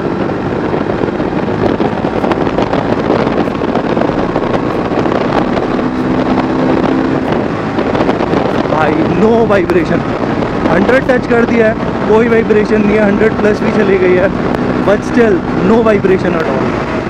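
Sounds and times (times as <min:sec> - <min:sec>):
motorcycle engine running hard: 0:00.0 - 0:17.0
wind rushing over microphone: 0:00.0 - 0:17.0.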